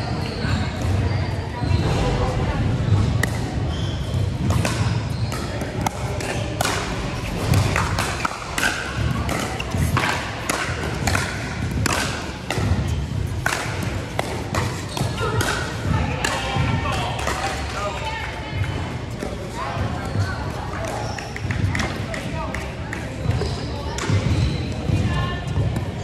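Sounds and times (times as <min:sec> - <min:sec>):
play on neighbouring courts: 0:00.0 - 0:26.0
paddles hitting plastic ball: 0:04.4 - 0:16.4.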